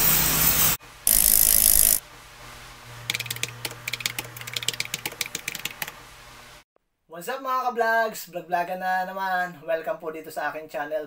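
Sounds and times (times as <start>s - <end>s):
keyboard typing clicks: 3.1s - 5.9s.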